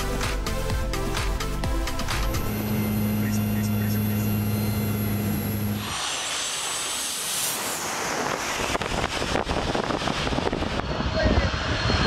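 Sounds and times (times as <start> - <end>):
low drone: 1.0 - 12.0
jet engines roaring: 2.0 - 12.0
wind buffeting microphone: 8.1 - 12.0.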